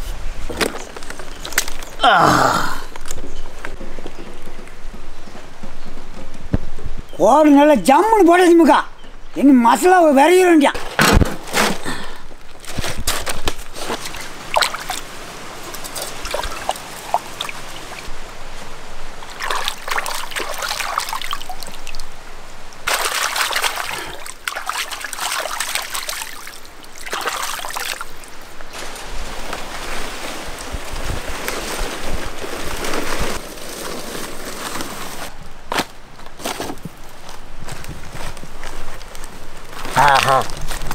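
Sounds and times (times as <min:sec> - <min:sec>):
water trickling and sloshing: 0:13.7 - 0:33.4.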